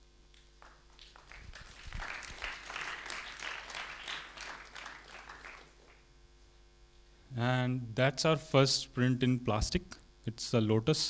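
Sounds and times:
audience applause: 0.6s - 6.0s.

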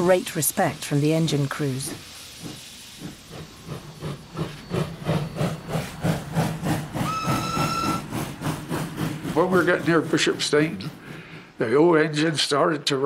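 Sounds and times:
steam locomotive exhaust chuffing: 0.0s - 13.0s
steam whistle: 7.0s - 8.1s.

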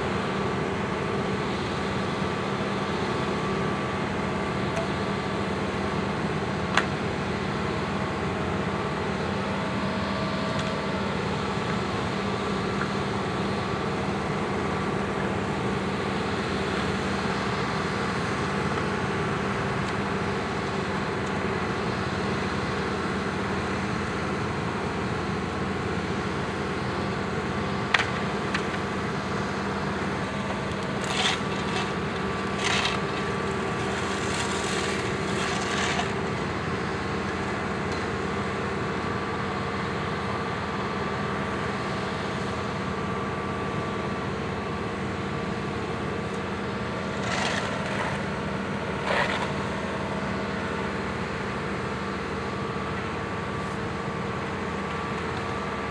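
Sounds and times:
diesel engine running: 0.0s - 55.9s
scrapes and knocks: 31.0s - 32.0s, 32.6s - 33.3s, 34.0s - 36.2s.

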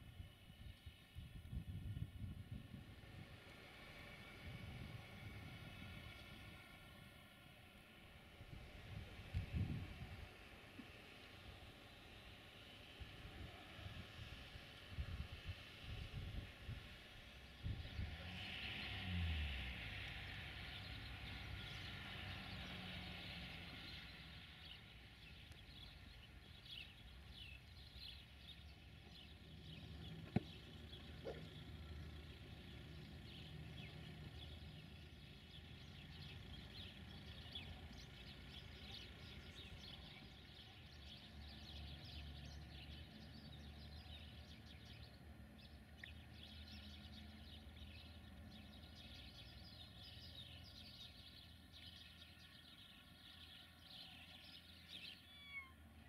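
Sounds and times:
low distant hum: 0.0s - 56.0s
small birds chirping: 0.0s - 56.0s.

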